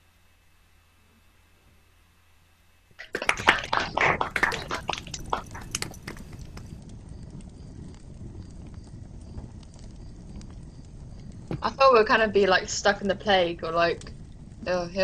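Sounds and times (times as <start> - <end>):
low rumble: 3.0 - 15.0
wood fire crackling: 3.0 - 15.0.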